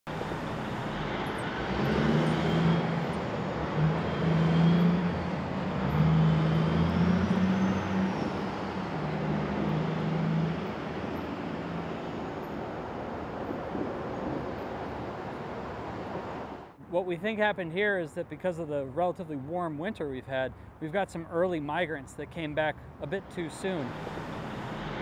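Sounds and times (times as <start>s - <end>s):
heavy vehicles droning past: 0.1s - 16.8s, 22.4s - 25.0s.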